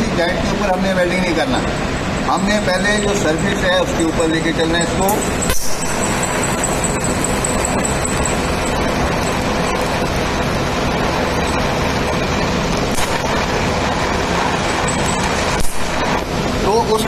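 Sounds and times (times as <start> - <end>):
welding arc hissing: 5.1 - 17.0.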